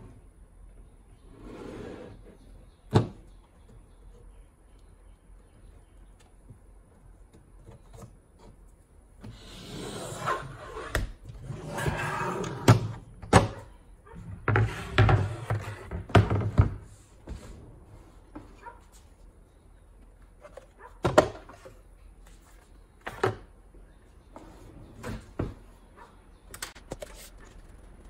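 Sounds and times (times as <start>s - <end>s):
drawer scraping on bench: 1.3s - 2.4s, 9.3s - 13.0s, 14.4s - 18.1s.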